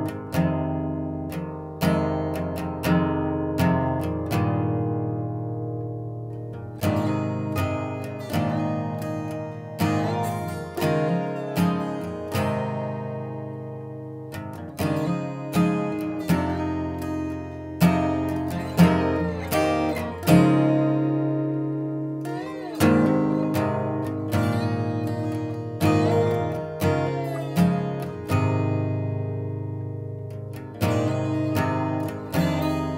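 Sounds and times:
guitar chords ringing out: 0.0 - 32.9.

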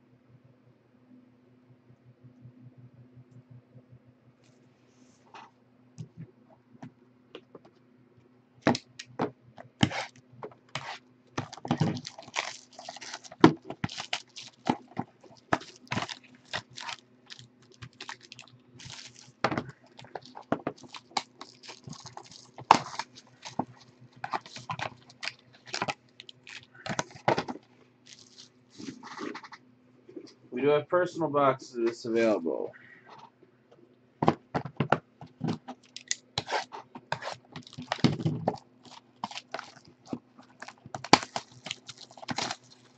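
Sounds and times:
faint low hum: 0.0 - 42.9
foil packs crinkling: 10.8 - 29.4, 35.4 - 42.9.

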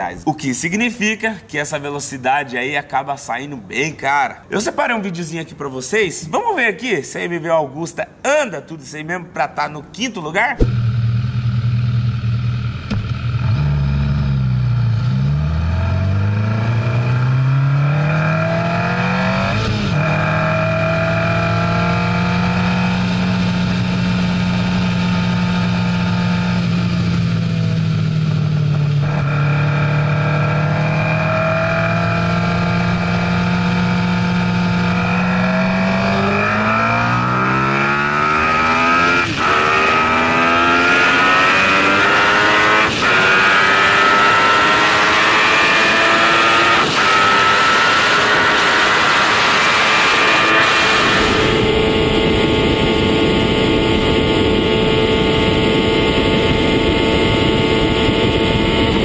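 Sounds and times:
motorcycle engine revving: 10.6 - 59.0
wind rush: 49.9 - 59.0.

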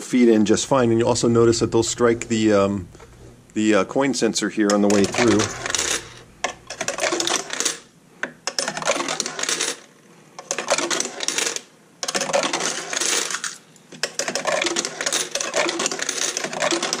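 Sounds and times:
coins clinking down into machine: 4.7 - 7.9, 8.5 - 17.0.

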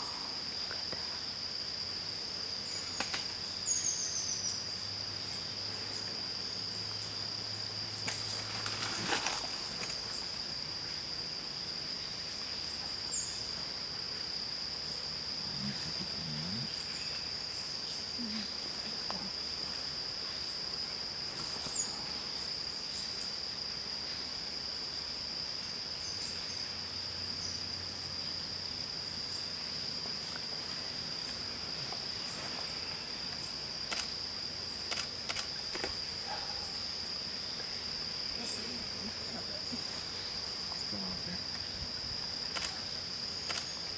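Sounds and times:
high-pitched insect drone: 0.0 - 43.9.

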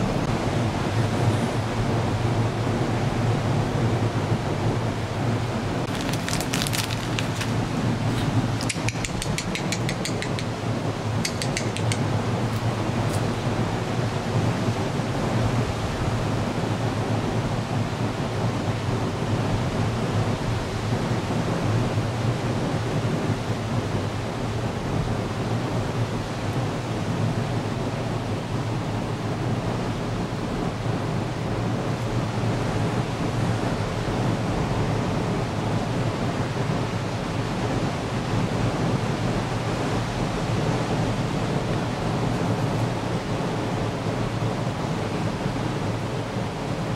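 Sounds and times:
steady outdoor rushing noise: 0.0 - 46.9
rapid high-pitched ticks: 8.6 - 10.6, 11.2 - 12.1.

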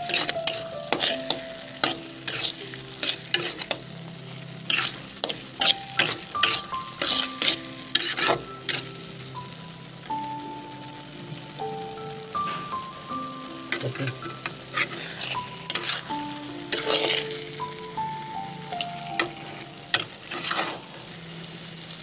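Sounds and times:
spatula scraping wok: 0.0 - 9.4, 13.6 - 18.0, 18.6 - 22.0
frying sizzle in wok: 0.0 - 22.0.

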